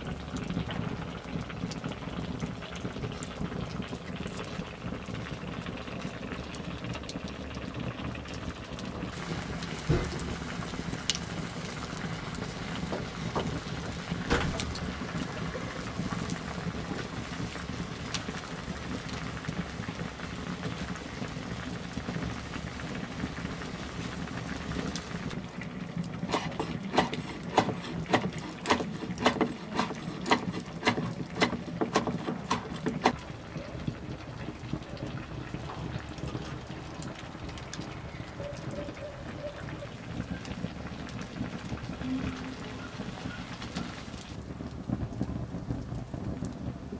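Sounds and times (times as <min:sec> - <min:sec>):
sauce bubbling and sizzling: 0:00.0 - 0:46.9
wood fire crackling: 0:00.0 - 0:46.9
knife chopping on wooden board: 0:26.3 - 0:33.2.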